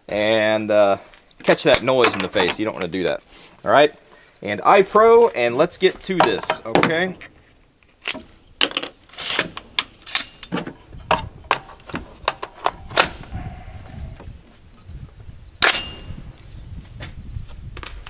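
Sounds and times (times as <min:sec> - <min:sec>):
clicks and clacks of rifle parts: 0:06.2 - 0:13.2.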